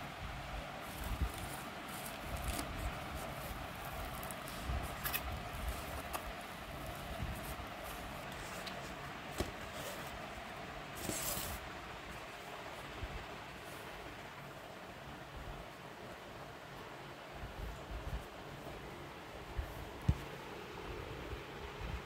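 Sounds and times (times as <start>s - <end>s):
background hum: 0.0s - 22.0s
cardboard box rustling: 0.8s - 11.6s.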